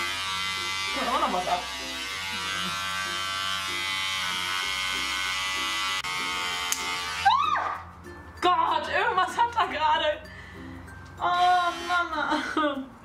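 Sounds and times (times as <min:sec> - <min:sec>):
electric hair clipper buzzing: 0:00.0 - 0:07.3, 0:11.4 - 0:12.1.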